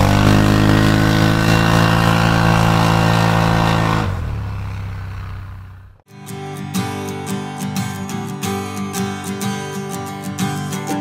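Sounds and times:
engine at high revs: 0.0 - 6.0.

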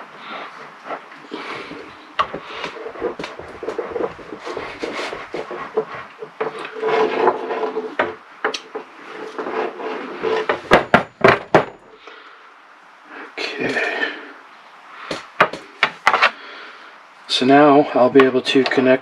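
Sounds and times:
crimping tool rubbing and clicking: 0.0 - 10.8
tools knocking on wood: 1.6 - 7.3, 7.9 - 8.9, 10.5 - 11.8, 15.1 - 16.2.

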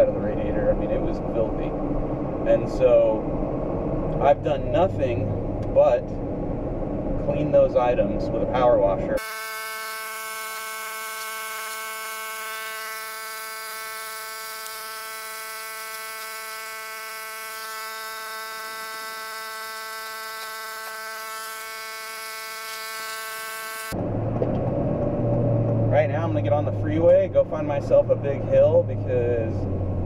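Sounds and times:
pressure washer buzzing hum: 9.2 - 24.0.

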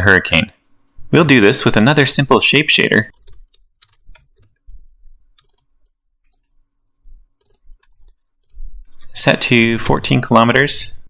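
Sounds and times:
computer mouse clicks: 3.1 - 4.7, 5.3 - 6.8, 7.4 - 9.7.

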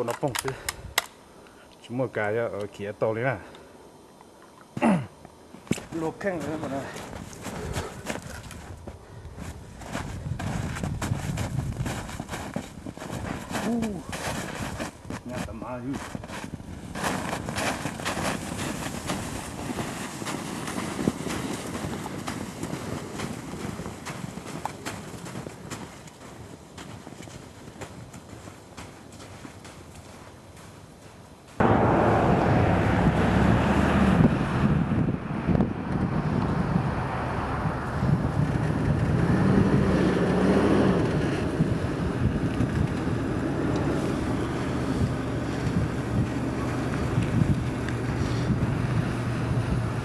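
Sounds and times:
faint hum: 0.0 - 38.4
boots crunching in snow: 5.9 - 31.2
wind buffeting microphone: 6.5 - 27.0, 31.6 - 50.0
carcass dragged across snow: 9.5 - 24.0.

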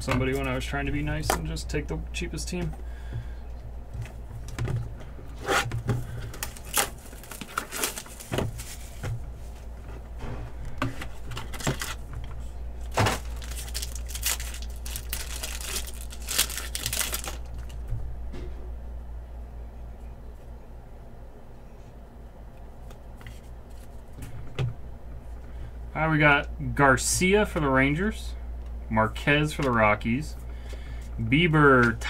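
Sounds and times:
low hum: 0.0 - 32.0
card wrappers crinkling and tearing: 6.0 - 9.0, 11.0 - 12.2, 12.8 - 17.8.

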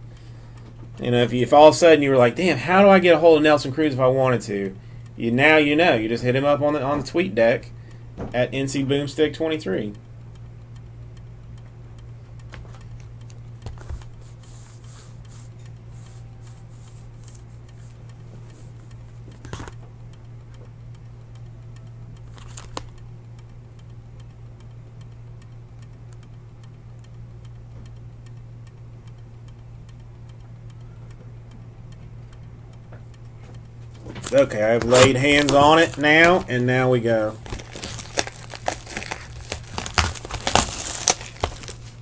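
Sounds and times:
faint regular ticking: 0.0 - 42.0
steady low hum: 0.0 - 42.0
cardboard box handling: 34.2 - 36.5, 37.4 - 42.0.

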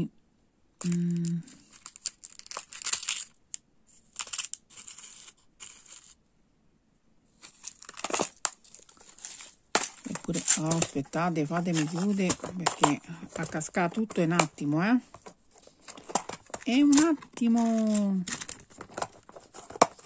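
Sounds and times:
plastic crinkling: 0.8 - 6.2, 7.4 - 20.0.

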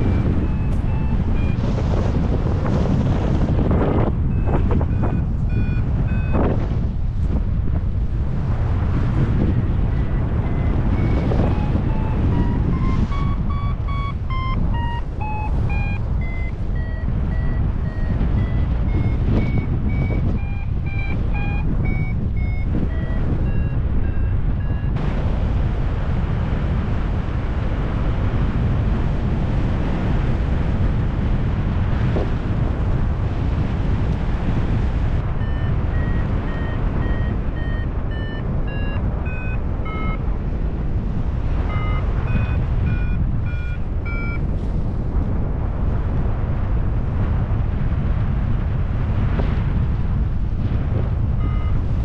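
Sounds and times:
variometer beeping: 0.0 - 2.3, 3.6 - 7.0, 8.9 - 25.0, 35.2 - 40.4, 41.4 - 44.6, 51.3 - 52.0
wind rushing on microphone: 0.0 - 52.0.

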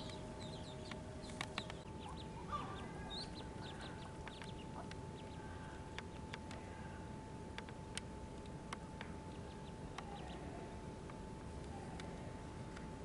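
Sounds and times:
sharp ticks: 0.0 - 2.2, 3.6 - 6.6
ducklings peeping: 0.0 - 11.2
high-pitched hum: 0.0 - 13.0
low background noise: 0.0 - 13.0.

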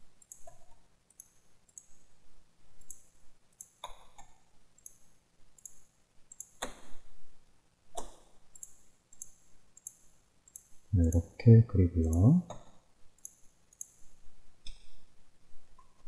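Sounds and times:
computer mouse clicking: 0.2 - 2.0, 2.8 - 5.0, 5.6 - 7.0, 7.9 - 11.2, 12.1 - 14.9.

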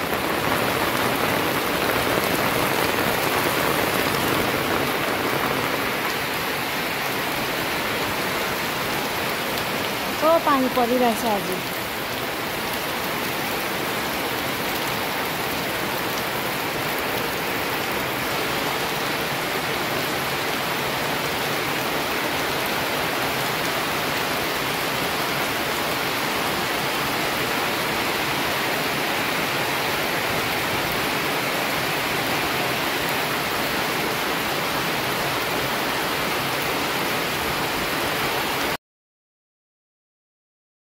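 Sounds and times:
rain on wet pavement: 0.0 - 38.8.

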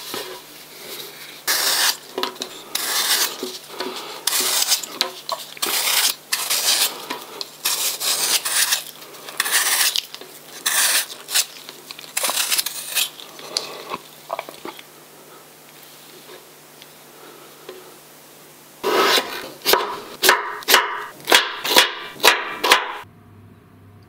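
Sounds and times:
faint steady hum: 0.0 - 24.0
utensils scraping and clinking: 1.0 - 14.8.

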